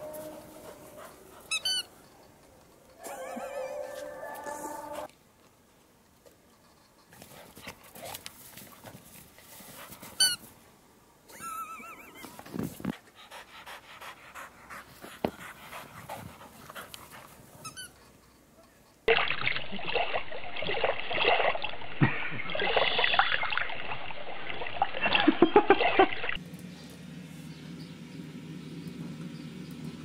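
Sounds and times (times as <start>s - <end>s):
dogs panting: 0.0s - 2.7s, 12.9s - 18.2s.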